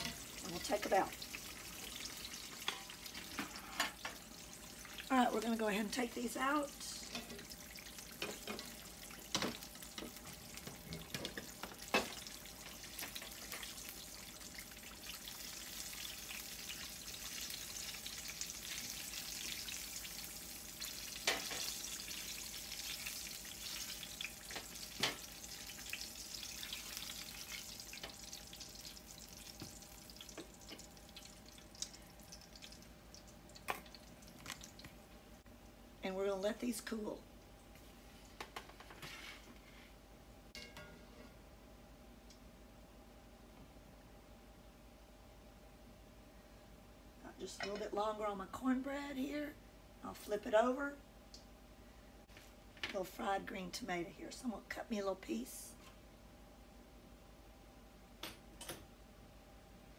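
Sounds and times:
slices sizzling in hot oil: 0.0s - 34.8s.

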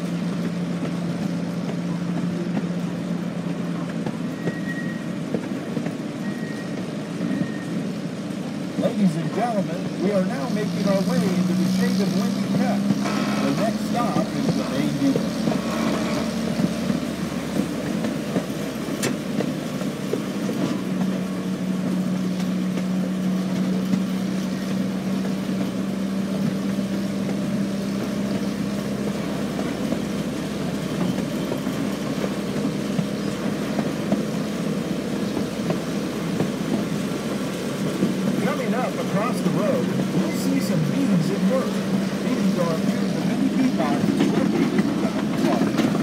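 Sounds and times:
train cars rolling rumble: 0.0s - 46.0s
train engine hum: 0.0s - 46.0s.

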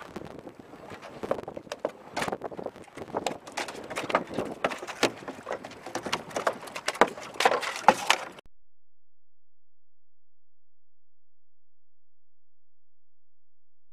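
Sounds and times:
fish flopping on boat deck: 1.0s - 8.4s.

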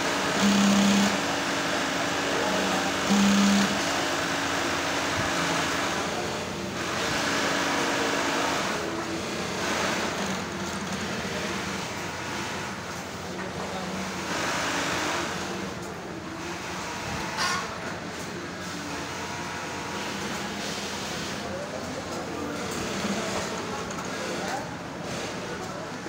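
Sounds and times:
sewing machine stitching: 0.0s - 1.4s
machinery hum: 0.0s - 6.8s.

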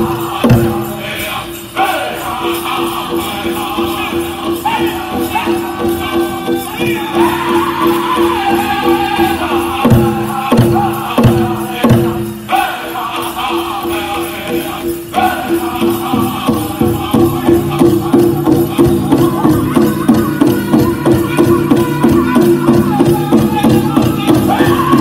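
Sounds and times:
bells jingling: 0.0s - 25.0s
men singing: 0.0s - 25.0s
big drum beating: 5.1s - 12.4s, 16.2s - 25.0s.

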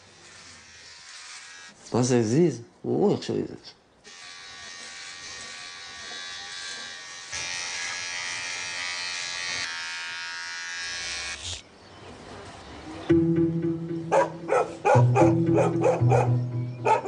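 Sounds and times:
small electric motor buzzing: 0.0s - 1.8s, 4.1s - 11.6s.

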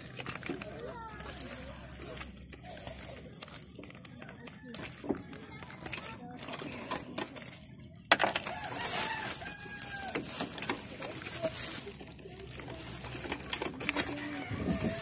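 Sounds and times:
rooster crowing: 8.4s - 10.4s, 14.0s - 15.0s.

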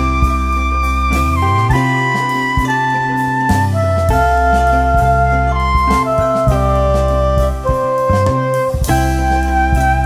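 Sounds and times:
instrumental music with bass line: 0.0s - 10.0s.

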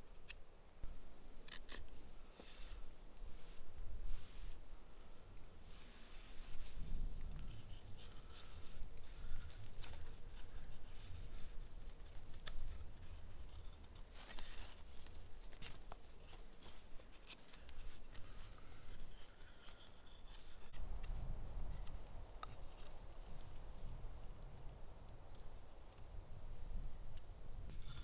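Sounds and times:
knife scraping bark off stick: 1.4s - 2.8s.

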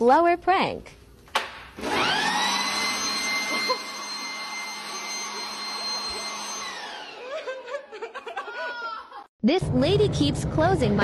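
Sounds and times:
leaf blower whining: 1.8s - 7.6s.

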